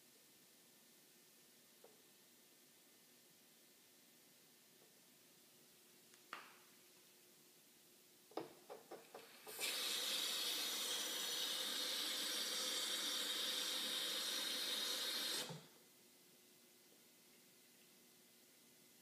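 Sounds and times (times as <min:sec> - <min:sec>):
faucet running water: 0:09.1 - 0:15.7.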